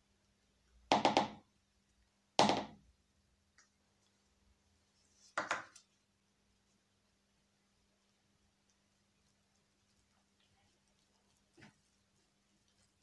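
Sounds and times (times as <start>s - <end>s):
spatula knocking plastic cup: 0.9s - 1.4s, 5.4s - 5.7s.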